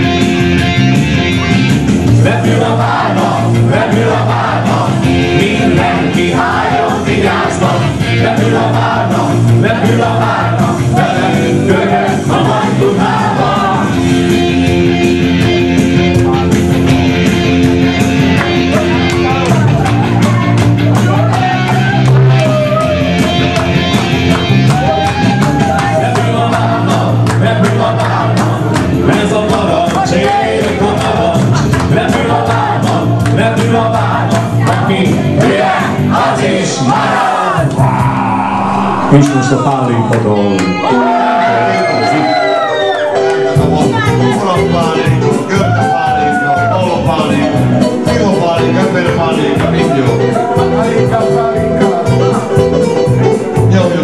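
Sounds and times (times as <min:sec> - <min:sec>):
live dance band playing: 0:00.0 - 0:54.0
person singing: 0:02.2 - 0:14.0, 0:37.6 - 0:42.2.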